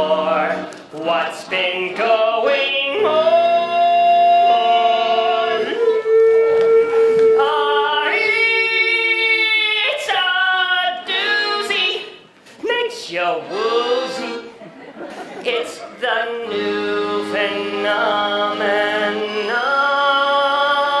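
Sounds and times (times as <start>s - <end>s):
cast singing: 0.0s - 12.2s, 13.1s - 14.6s.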